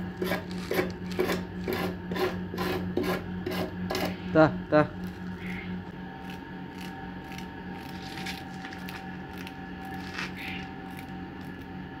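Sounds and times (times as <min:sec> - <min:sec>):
wooden comb teeth scraping: 0:06.2 - 0:11.7.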